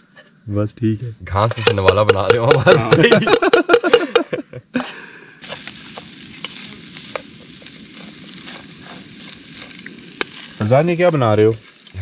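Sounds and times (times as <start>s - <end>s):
man laughing: 1.5s - 5.0s
chicken sizzling in pan: 5.4s - 12.0s
wooden spatula scraping: 6.0s - 12.0s.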